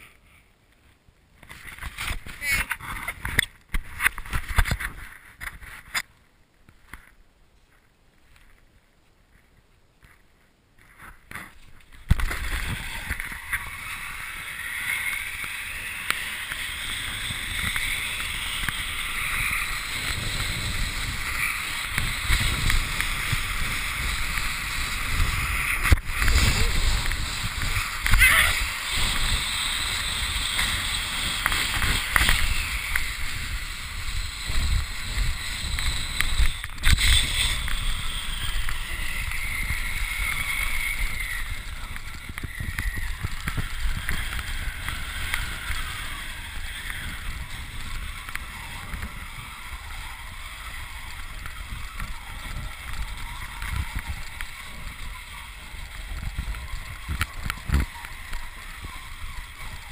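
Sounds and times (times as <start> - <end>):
tube sliding over snow: 10.8 - 59.9
wind buffeting microphone: 12.0 - 59.9.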